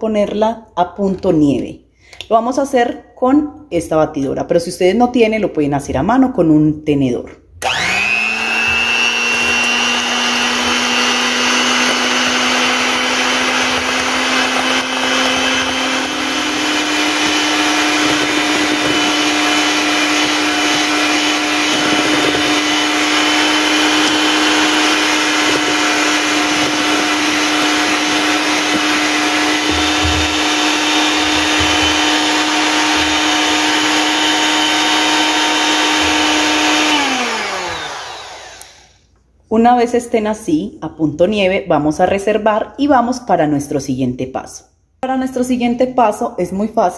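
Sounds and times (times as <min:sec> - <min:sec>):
electric hand mixer running: 0:07.6 - 0:39.1.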